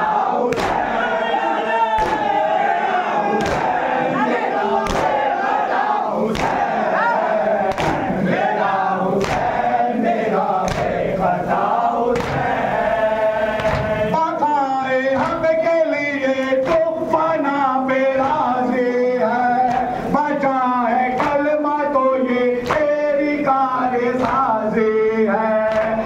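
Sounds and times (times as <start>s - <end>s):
crowd of men chanting: 0.0s - 26.0s
chest-beating slaps: 0.5s - 1.0s, 2.0s - 2.4s, 3.4s - 3.9s, 4.8s - 5.3s, 6.3s - 6.8s, 7.7s - 8.2s, 9.2s - 9.7s, 10.6s - 11.1s, 12.2s - 12.6s, 13.6s - 14.1s, 24.2s - 24.5s.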